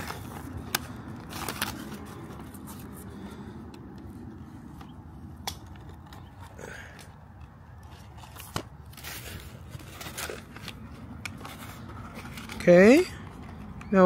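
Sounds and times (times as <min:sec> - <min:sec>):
plastic clicks and crinkles: 0:04.7 - 0:14.0.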